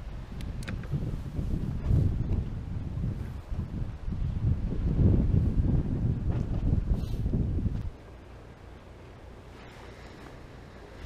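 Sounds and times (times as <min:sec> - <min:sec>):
wind rumble on microphone: 0:00.0 - 0:11.0
light hiss: 0:06.9 - 0:11.0.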